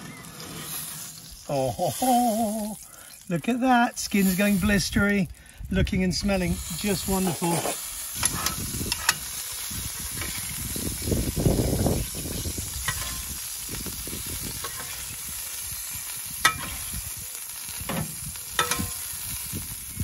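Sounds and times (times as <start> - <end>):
fish sizzling in hot oil: 0.0 - 20.0
spoon clinking against pan: 18.6 - 19.0.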